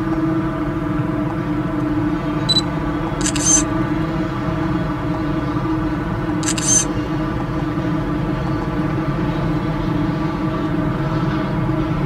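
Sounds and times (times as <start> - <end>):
camera shutter clicks: 3.2 - 3.6, 6.4 - 6.9.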